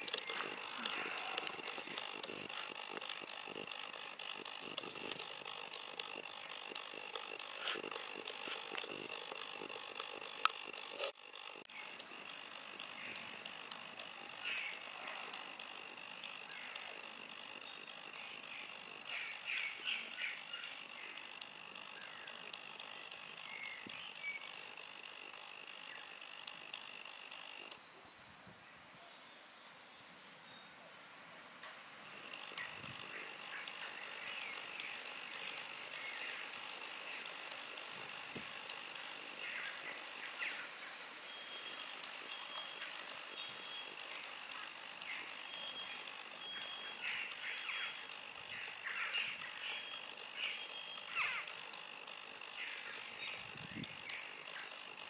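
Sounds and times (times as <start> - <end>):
birds chirping and calling: 0.0 - 31.0, 32.2 - 55.0.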